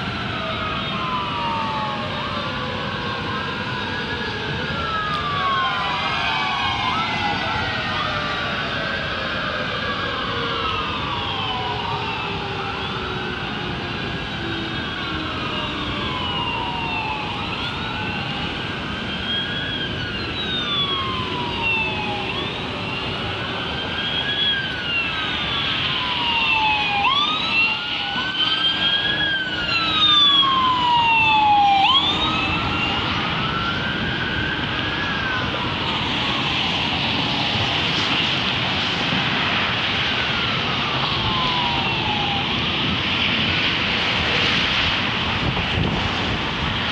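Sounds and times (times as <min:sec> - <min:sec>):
city traffic noise: 0:00.0 - 0:46.9
sirens wailing: 0:00.0 - 0:46.9.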